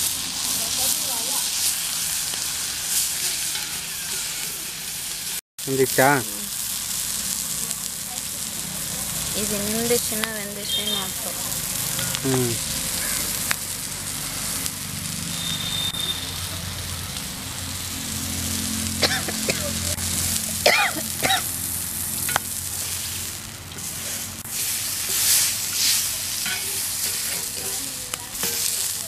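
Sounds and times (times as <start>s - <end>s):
oil sizzling on a griddle: 0.0s - 29.0s
metal spatula scraping griddle: 1.6s - 5.0s, 22.2s - 29.0s.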